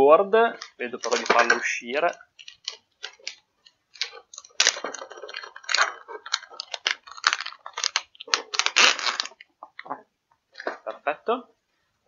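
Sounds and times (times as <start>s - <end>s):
plastic bag crinkling: 0.5s - 9.9s.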